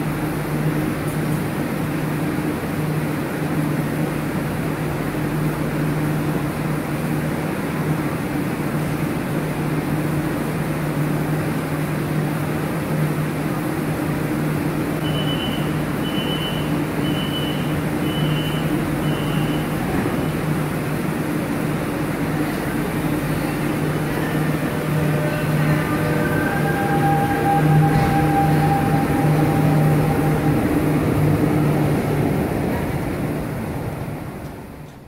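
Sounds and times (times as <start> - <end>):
short high beeps: 15.0 - 19.7.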